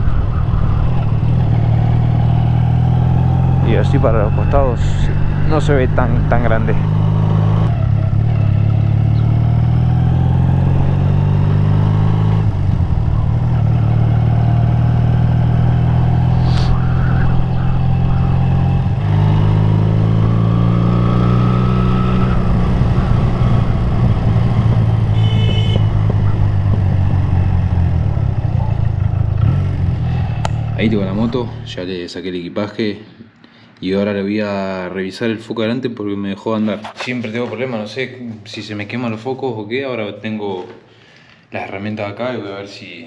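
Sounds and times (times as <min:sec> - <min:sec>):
motorcycle engine running: 0:00.0 - 0:31.7.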